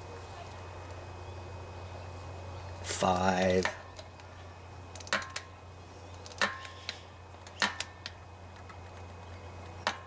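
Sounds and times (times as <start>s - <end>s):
steady low hum: 0.0s - 10.0s
torque wrench clicking: 4.9s - 5.5s, 6.1s - 10.0s.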